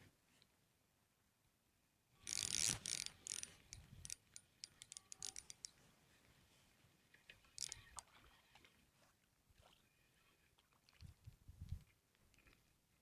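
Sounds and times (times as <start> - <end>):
fishing reel clicking: 2.2 - 5.7, 7.6 - 7.8.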